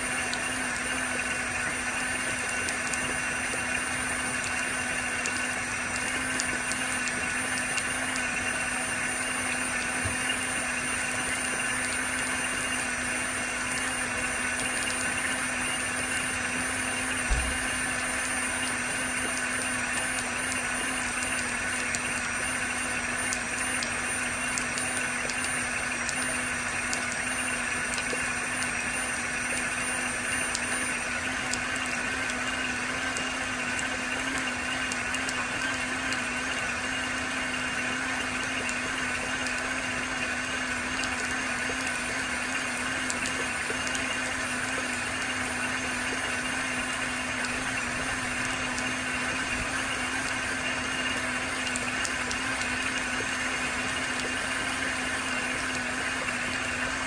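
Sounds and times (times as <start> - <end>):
hand vacuum motor humming and whining: 0.0 - 57.0
raindrops ticking: 40.7 - 57.0.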